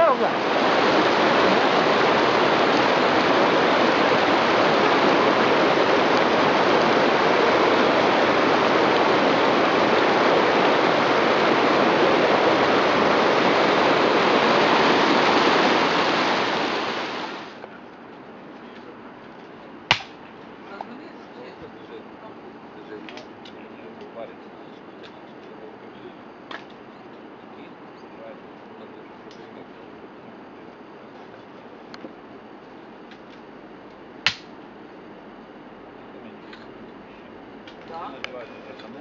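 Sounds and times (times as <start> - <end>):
river water rushing over rocks: 0.0 - 17.6.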